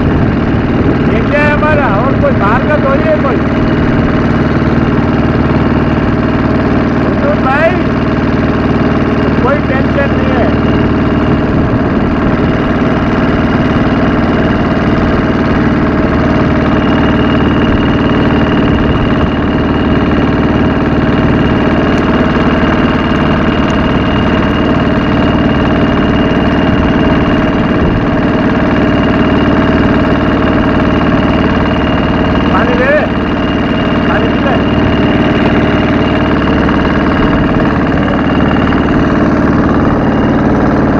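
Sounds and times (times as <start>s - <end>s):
motorboat engine droning: 0.0s - 40.9s.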